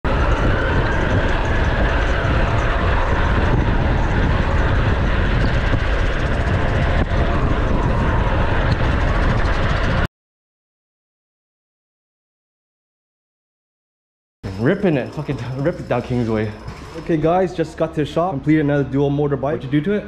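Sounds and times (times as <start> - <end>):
road noise rumble: 0.0 - 10.1, 14.4 - 20.0
wind buffeting microphone: 0.0 - 10.1, 14.4 - 20.0.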